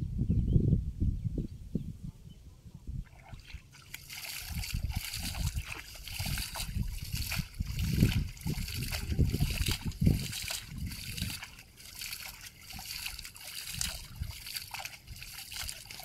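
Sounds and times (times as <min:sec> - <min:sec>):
water splashing and sloshing: 0:03.0 - 0:16.0.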